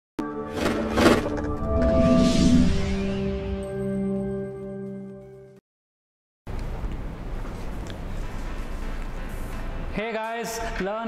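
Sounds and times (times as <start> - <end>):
logo sting music: 0.2 - 4.9.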